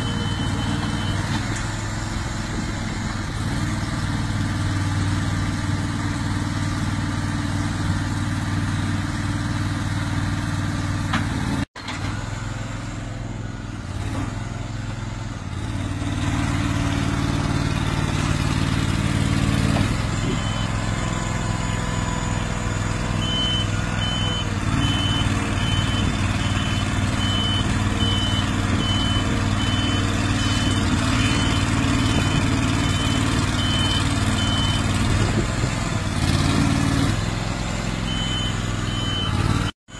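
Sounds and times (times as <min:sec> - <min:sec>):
high-pitched warning beeps: 0:00.0 - 0:01.4, 0:21.6 - 0:34.9
engine running: 0:00.0 - 0:39.8.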